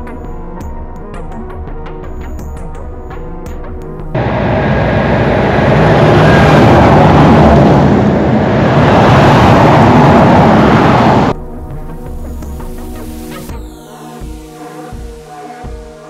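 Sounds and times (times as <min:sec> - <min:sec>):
vehicle passing at speed: 0:04.2 - 0:11.4.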